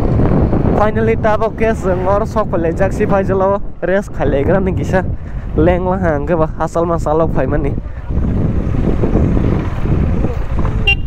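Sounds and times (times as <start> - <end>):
motorcycle engine at low speed: 0.0 - 2.2, 7.8 - 11.0
wind rumble on microphone: 0.0 - 11.0.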